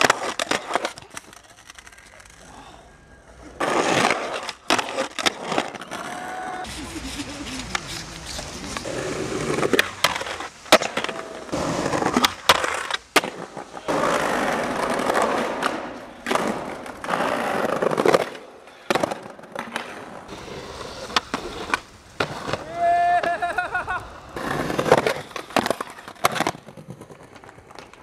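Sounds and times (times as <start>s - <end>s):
skateboard popping and landing: 0.0s - 2.4s, 3.5s - 28.0s
skateboard wheels rolling on concrete: 0.0s - 28.0s.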